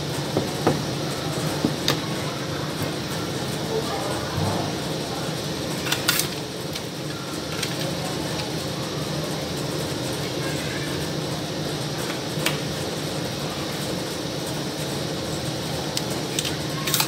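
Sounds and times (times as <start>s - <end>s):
workshop machinery humming: 0.0s - 17.0s.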